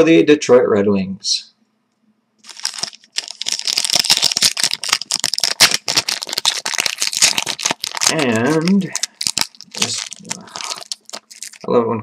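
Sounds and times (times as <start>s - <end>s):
wrapper crinkling and crackling: 2.4s - 11.7s.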